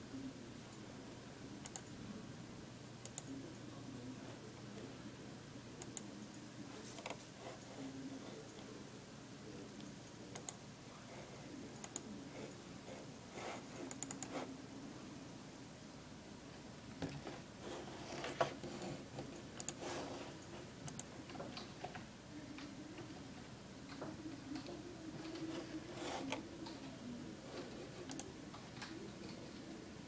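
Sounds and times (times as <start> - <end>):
faint steady hum: 0.0 - 30.0
computer control clicks: 1.6 - 1.9, 3.0 - 3.3, 10.3 - 10.6, 13.9 - 14.3, 19.6 - 19.8, 20.9 - 21.7.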